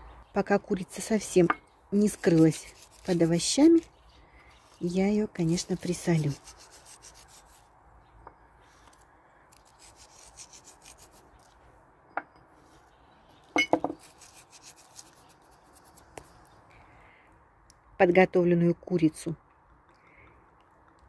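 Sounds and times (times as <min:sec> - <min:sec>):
salt rubbing on raw chicken: 0:02.1 - 0:03.9, 0:05.4 - 0:07.6, 0:09.6 - 0:11.4, 0:14.0 - 0:16.2.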